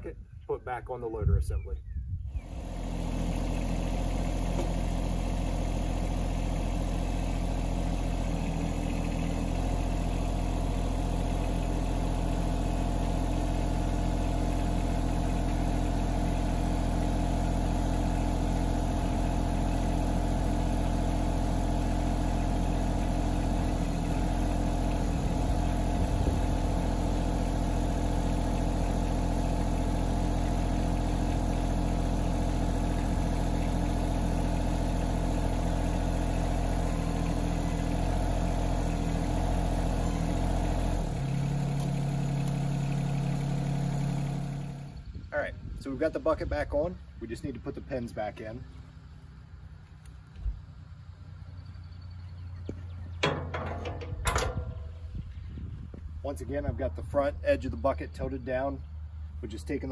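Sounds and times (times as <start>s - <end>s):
tractor diesel engine idling: 2.3s - 48.9s, 49.5s - 59.9s
loader hydraulics working: 2.4s - 45.0s.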